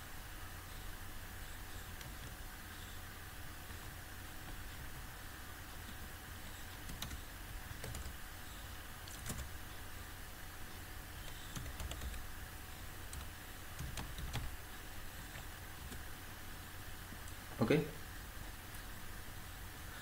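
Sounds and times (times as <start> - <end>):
low hum and hiss: 0.0 - 20.0
computer keyboard keystrokes: 7.8 - 8.2, 9.1 - 9.5, 11.2 - 12.2, 13.1 - 14.5.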